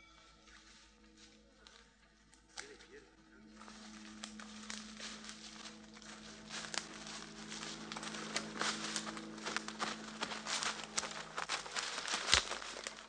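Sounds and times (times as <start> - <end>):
steady low hum: 0.0 - 13.0
footsteps on dry leaves and twigs: 0.4 - 13.0.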